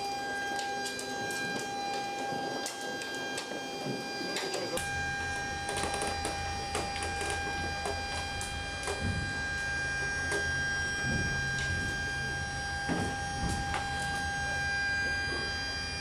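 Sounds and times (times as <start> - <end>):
steady high-pitched whine: 0.0 - 16.0
low hum: 4.8 - 16.0.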